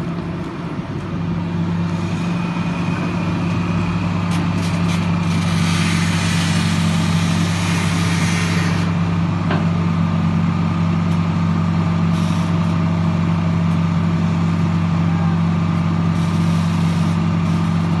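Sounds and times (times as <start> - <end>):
excavator diesel engine droning: 0.0 - 18.0
hiss: 5.4 - 8.9.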